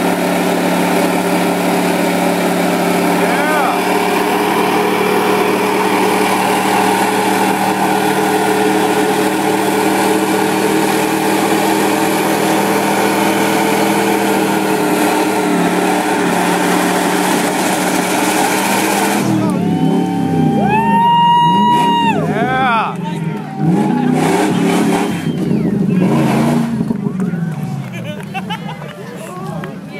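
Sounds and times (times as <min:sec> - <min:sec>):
pickup engine at high revs: 0:00.0 - 0:28.5.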